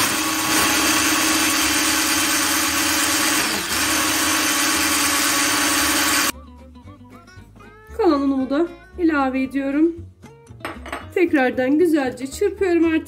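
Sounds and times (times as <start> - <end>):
electric hand mixer whisking batter: 0.0 - 6.3.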